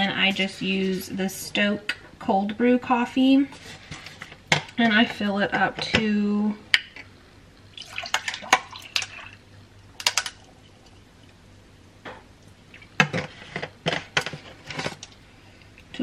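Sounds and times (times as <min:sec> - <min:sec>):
liquid pouring and splashing: 0:07.7 - 0:09.4.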